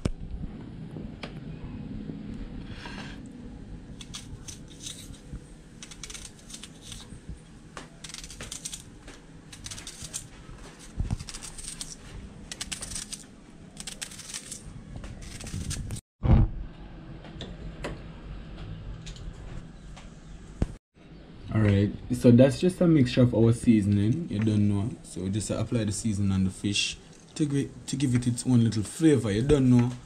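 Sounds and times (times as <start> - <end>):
knife slicing onion: 4.0 - 7.2, 7.8 - 8.9, 9.5 - 13.2, 13.8 - 16.0.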